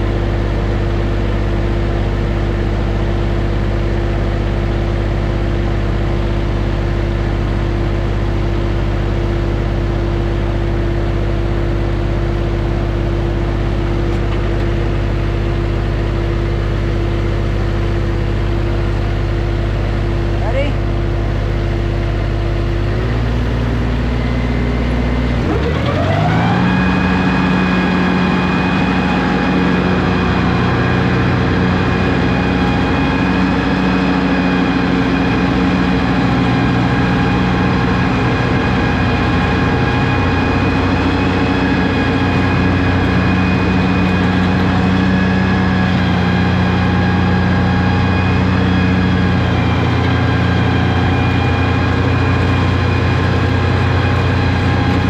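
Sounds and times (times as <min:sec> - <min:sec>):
lawn tractor engine revving: 0:22.8 - 0:55.0.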